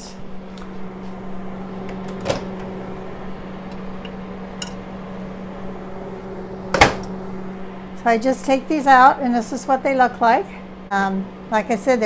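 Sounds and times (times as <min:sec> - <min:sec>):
oven humming: 0:00.0 - 0:12.0
oven door clunk: 0:01.8 - 0:02.8, 0:06.7 - 0:07.2.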